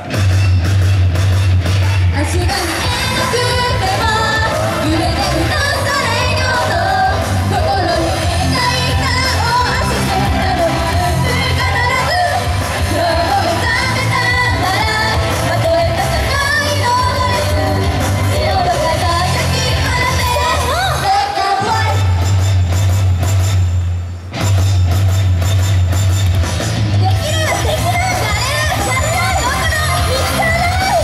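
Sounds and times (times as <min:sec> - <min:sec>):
backing track with bass beat: 0:00.0 - 0:21.2, 0:21.8 - 0:31.0
group singing pop song: 0:02.1 - 0:22.3, 0:27.3 - 0:31.0.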